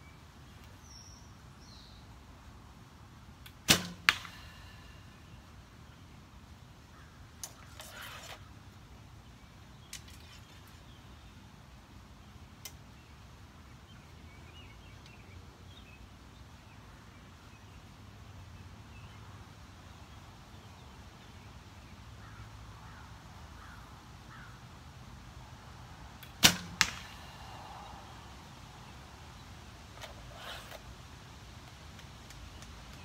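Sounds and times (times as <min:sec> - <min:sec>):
arrow hitting foam target: 0:03.6 - 0:04.5, 0:26.2 - 0:27.4.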